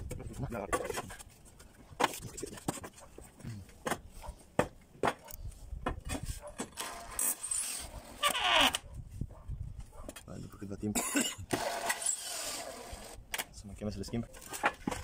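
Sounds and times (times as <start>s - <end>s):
cordless drill driving screw: 11.5s - 13.4s.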